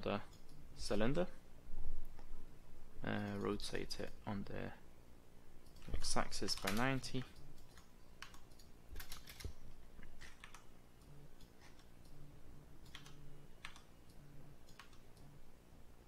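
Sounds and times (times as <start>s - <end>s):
faint low hum: 0.0s - 16.0s
keyboard keys clicking: 5.6s - 9.6s, 12.8s - 13.9s, 14.6s - 15.2s.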